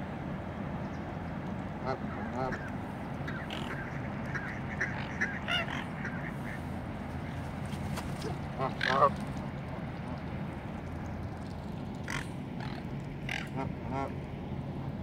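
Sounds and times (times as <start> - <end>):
ducks quacking and chattering: 1.8 - 7.4, 8.2 - 9.2, 12.0 - 14.2
goose honk: 3.3 - 6.6, 8.6 - 9.1, 12.1 - 14.1.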